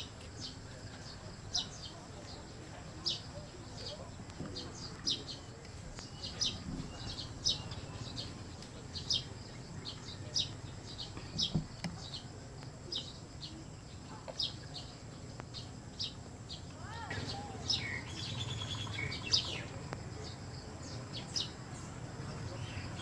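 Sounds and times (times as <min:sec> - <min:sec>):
birds chirping: 0:00.0 - 0:23.0
steady outdoor background: 0:00.0 - 0:23.0.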